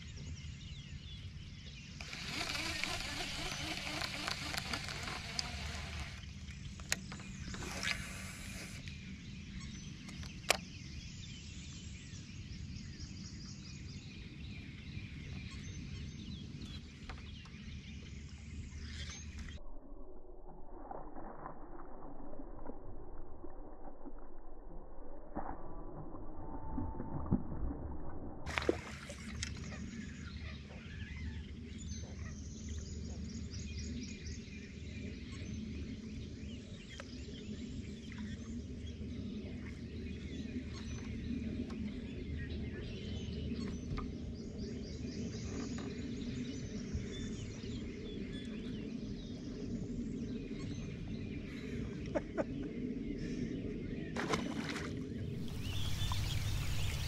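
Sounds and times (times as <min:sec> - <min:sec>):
scattered clicks: 0:02.0 - 0:06.2
loud hissing: 0:07.6 - 0:08.8
faint bird chirps: 0:55.2 - 0:57.0.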